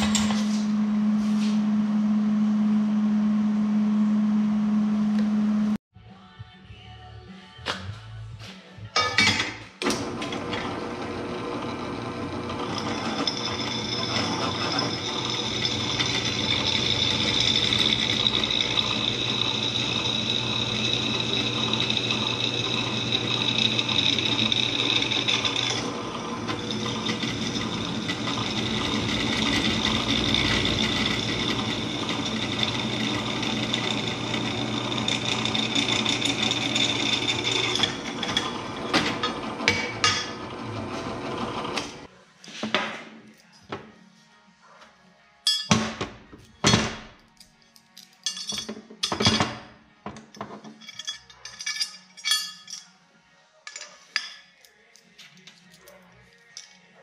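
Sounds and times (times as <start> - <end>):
drill press cutting steel: 9.8 - 42.1.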